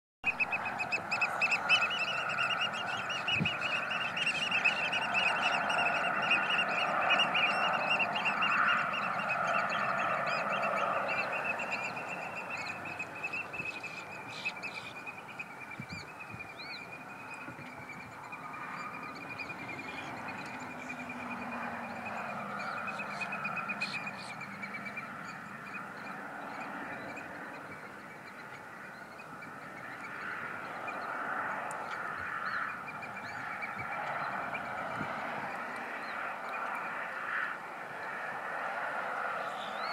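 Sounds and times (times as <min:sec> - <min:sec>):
high whistled calls: 0:00.3 - 0:15.2
chorus of high animal calls: 0:00.3 - 0:27.7.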